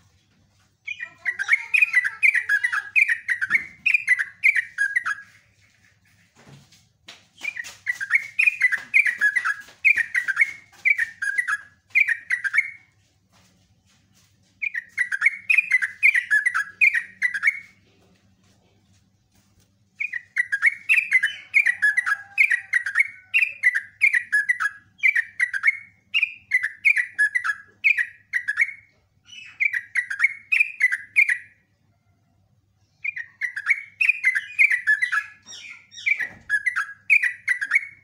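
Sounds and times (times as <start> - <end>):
bird singing falling notes: 0.9 - 5.3, 7.4 - 12.8, 33.0 - 38.0.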